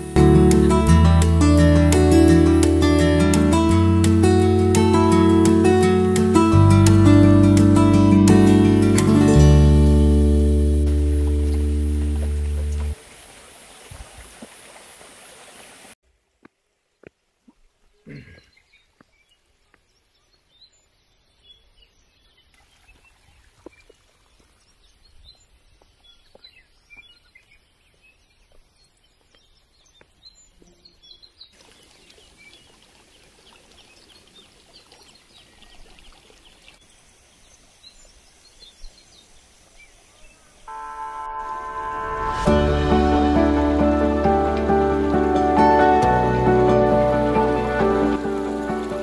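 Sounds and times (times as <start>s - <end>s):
small birds chirping: 17.5s - 40.7s.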